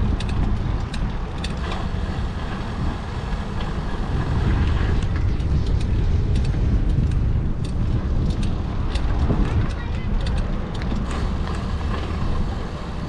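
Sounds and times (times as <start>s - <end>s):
sharp clicks and ticks: 0.0s - 1.8s, 4.5s - 12.1s
low wind rumble on microphone: 0.0s - 13.0s.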